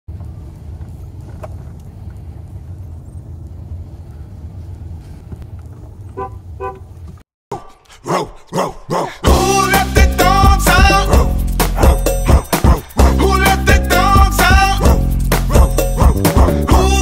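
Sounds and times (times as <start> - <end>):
car cabin rumble: 0.1 - 7.2
car horn toots: 6.1 - 7.0.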